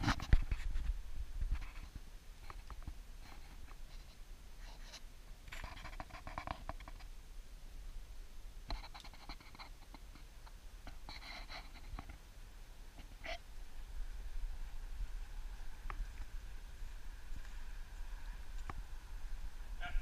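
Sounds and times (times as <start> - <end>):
dog paws scratching on dirt: 0.0 - 7.1, 8.7 - 12.3.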